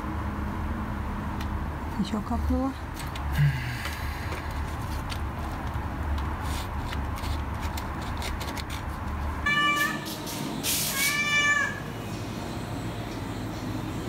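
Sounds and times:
cat meowing: 0:09.4 - 0:10.1, 0:10.9 - 0:11.9.

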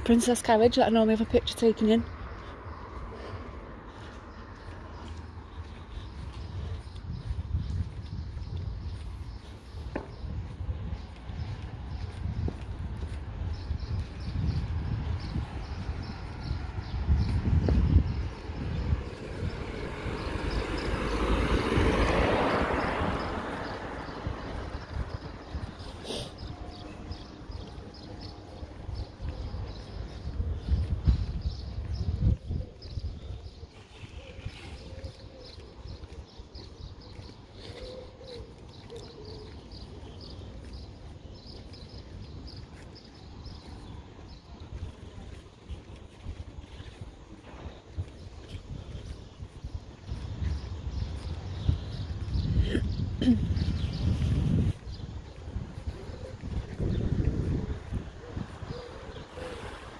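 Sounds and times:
small birds chirping: 0:00.0 - 0:59.9
vehicle passing: 0:18.3 - 0:28.8.

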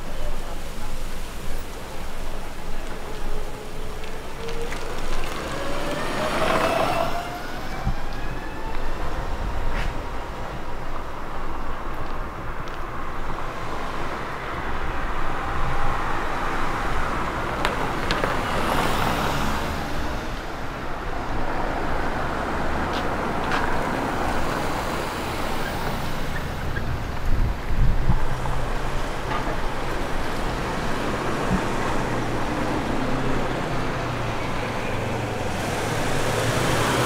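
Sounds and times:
street ambience: 0:00.0 - 0:37.0
car driving past: 0:03.0 - 0:09.2.

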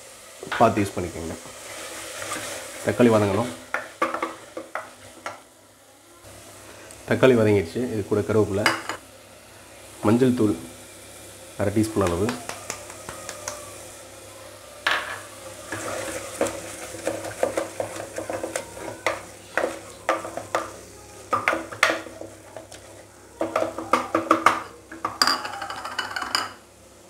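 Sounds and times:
light sizzle: 0:00.0 - 0:27.0
spatula scraping and knocking pot: 0:14.9 - 0:26.3.

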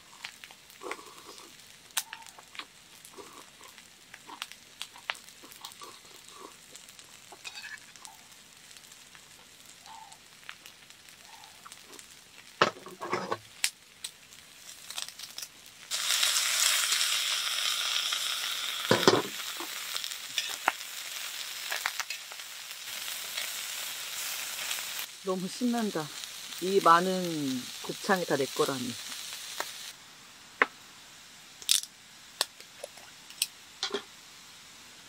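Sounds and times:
food sizzling on a grill pan: 0:00.0 - 0:32.4
tongs and tableware clinking: 0:07.4 - 0:07.9.

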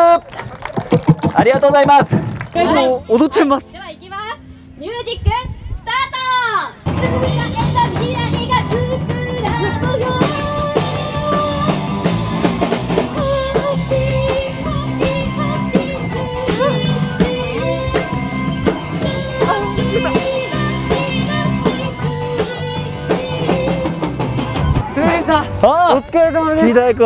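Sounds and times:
drum kit beat: 0:06.9 - 0:25.6
electric guitar: 0:06.9 - 0:25.6
man singing: 0:19.4 - 0:20.6.

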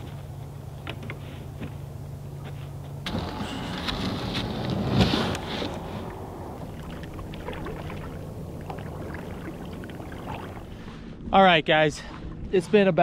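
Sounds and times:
paddle strokes in water: 0:03.8 - 0:11.2
water splashing: 0:04.9 - 0:11.2.

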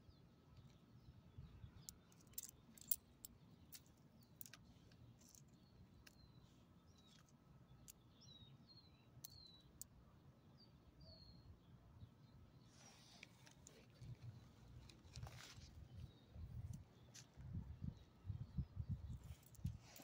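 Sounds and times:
bird chirps: 0:00.0 - 0:13.2.

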